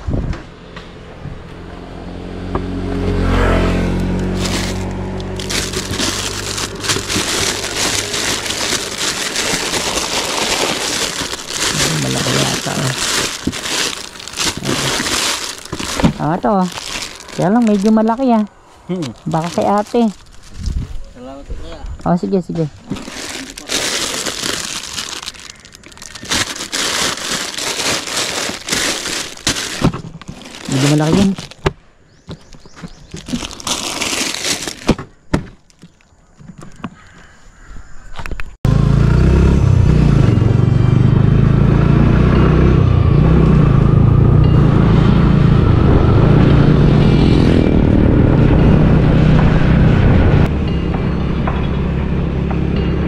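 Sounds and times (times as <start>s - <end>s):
vehicle engine hum: 0.0s - 21.4s, 22.0s - 34.8s, 38.7s - 53.0s
plastic packaging crinkling: 4.0s - 21.0s, 22.8s - 31.7s, 33.0s - 35.0s.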